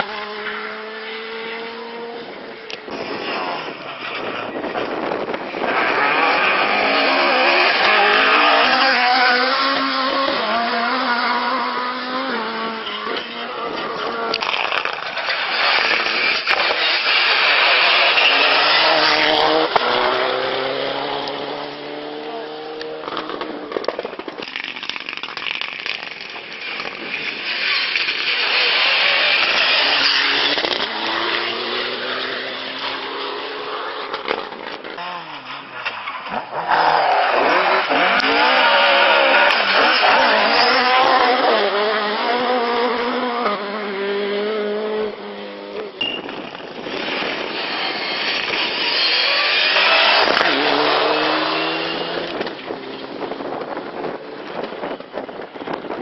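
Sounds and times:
rally car engines at full throttle: 0:00.0 - 0:56.0
car revving through gear changes: 0:05.7 - 0:14.0, 0:18.0 - 0:23.7, 0:36.6 - 0:45.9, 0:49.1 - 0:52.7.

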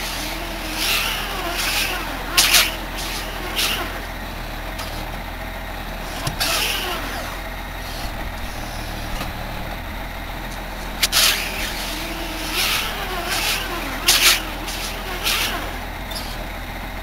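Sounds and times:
short hissing bursts: 0:00.0 - 0:04.2, 0:10.8 - 0:16.5
tractor engine running: 0:00.0 - 0:17.0.

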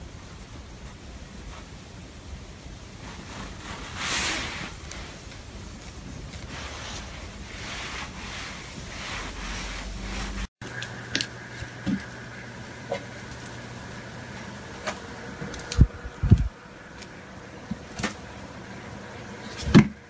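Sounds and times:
hand rubbing cat fur: 0:03.0 - 0:05.4, 0:06.3 - 0:10.5.

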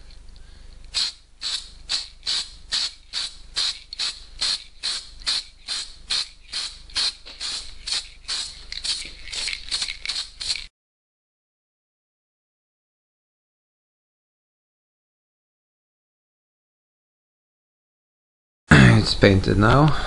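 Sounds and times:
spray paint can hissing: 0:00.9 - 0:10.7.

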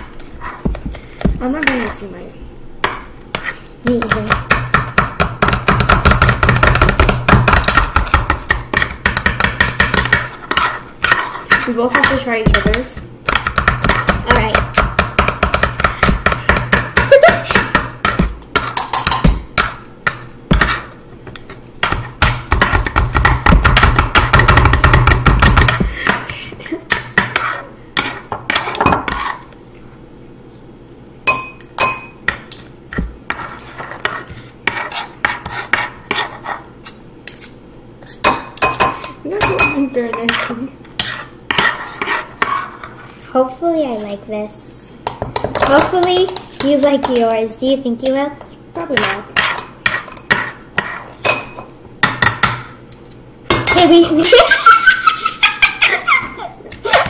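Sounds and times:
metal spoons chopping on wooden board: 0:02.8 - 0:20.9, 0:21.8 - 0:26.3, 0:38.2 - 0:42.6.

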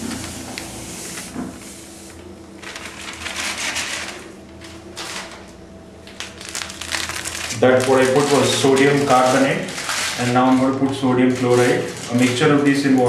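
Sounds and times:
plastic packet rustling: 0:02.6 - 0:13.0
powder pouring into plastic bucket: 0:06.5 - 0:13.0.

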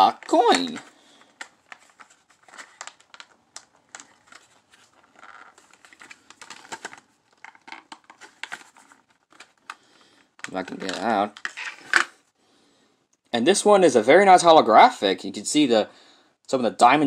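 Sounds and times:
plastic packaging crinkling: 0:00.0 - 0:12.2.

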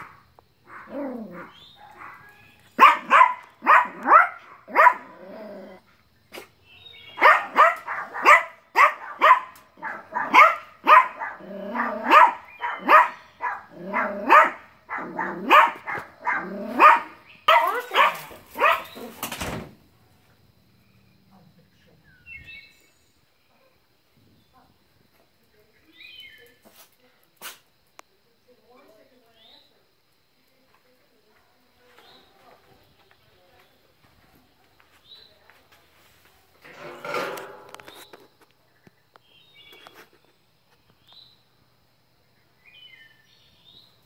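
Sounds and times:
small dogs yapping: 0:00.0 - 0:05.7, 0:07.2 - 0:19.3.

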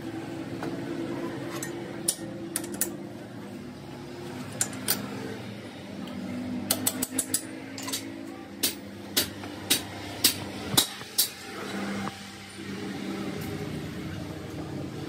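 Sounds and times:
metallic clicks and knocks: 0:06.7 - 0:08.0.

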